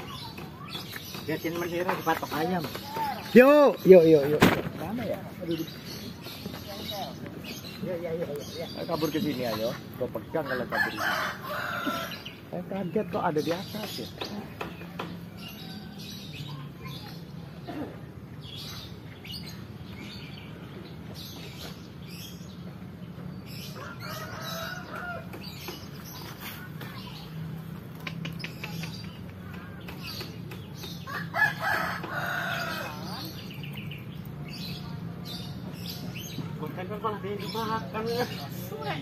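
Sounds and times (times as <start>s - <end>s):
small birds chirping: 0.0s - 39.0s
rooster crowing: 10.4s - 12.2s, 31.1s - 33.2s.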